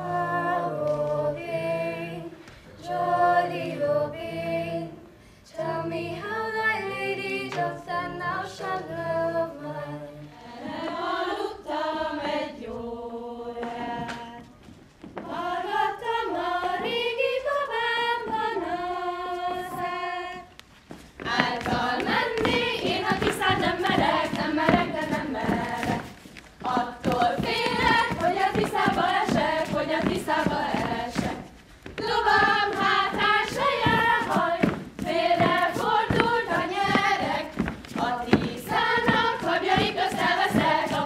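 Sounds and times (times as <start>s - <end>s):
group folk singing: 0.0s - 41.0s
young voices singing unaccompanied: 0.0s - 41.0s.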